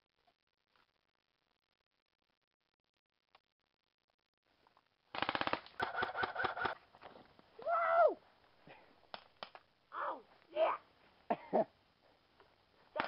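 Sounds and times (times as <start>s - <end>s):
airsoft rifle firing: 5.1s - 6.8s
person shouting: 7.6s - 8.2s, 9.9s - 10.8s.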